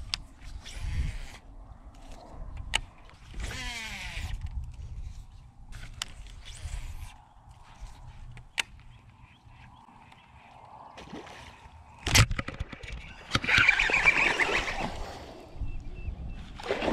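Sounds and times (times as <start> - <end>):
rod and reel handling clicks: 0.0 - 10.4
fishing reel spool whirring: 0.4 - 1.5, 3.2 - 4.5, 13.0 - 15.0.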